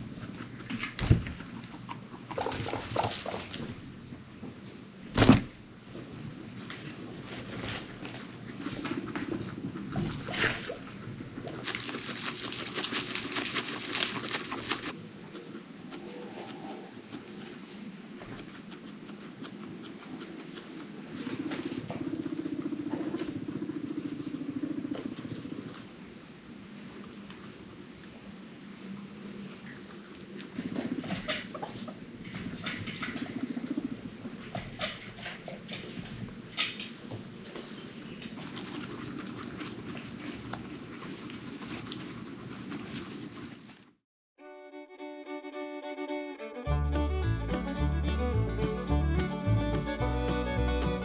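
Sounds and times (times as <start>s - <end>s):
guinea pig rumbling purr: 0.0s - 4.0s, 6.0s - 26.0s, 29.4s - 43.9s
rustling: 2.3s - 3.8s, 5.2s - 15.0s, 34.5s - 44.0s.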